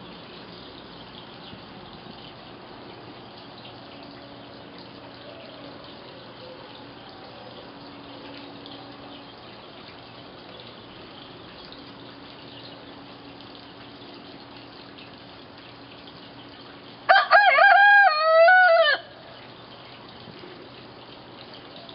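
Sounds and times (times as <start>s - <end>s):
steady background hiss: 0.0s - 17.1s
hen crowing: 17.1s - 19.2s.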